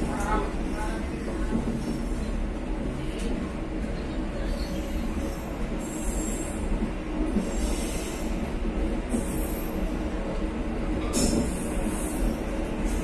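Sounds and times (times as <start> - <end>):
train rumbling: 0.0 - 13.0
train wheel squeals: 4.4 - 6.6.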